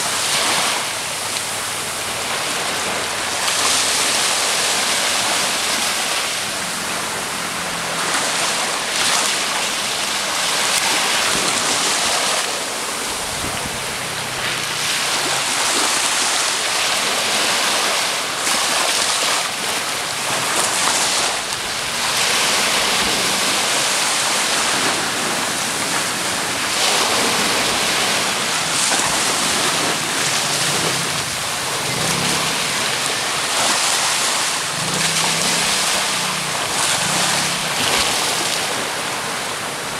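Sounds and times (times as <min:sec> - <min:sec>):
small waves breaking on beach: 0:00.0 - 0:39.9.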